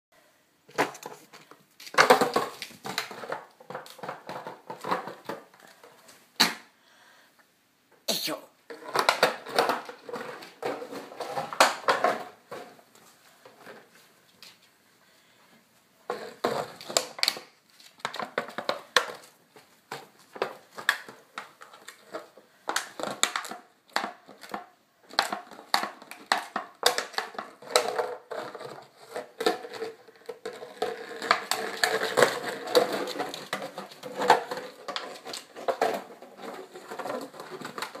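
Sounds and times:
plastic bottle crinkling: 16.1 - 38.0.

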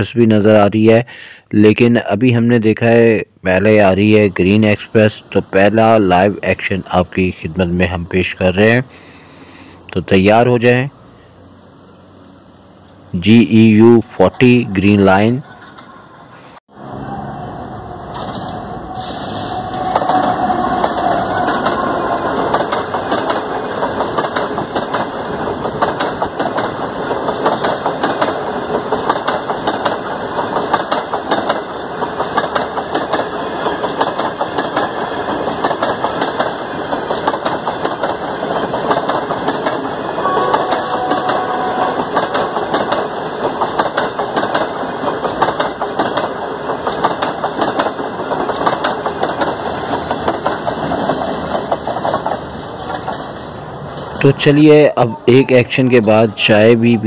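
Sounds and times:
diesel locomotive engine: 2.6 - 57.0
train wheels clattering on rails: 18.1 - 54.2.

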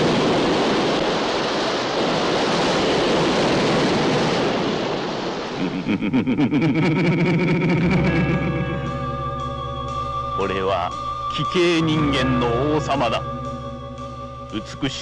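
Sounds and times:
waves breaking on rocky shore: 0.0 - 5.9
music: 7.3 - 15.0.

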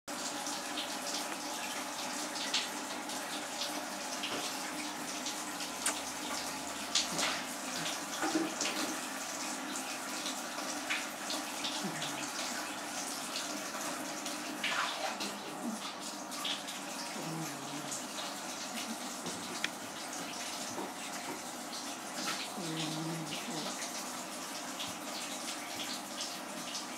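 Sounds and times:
water running: 0.1 - 26.9
small splashes and clicks: 5.8 - 8.9.

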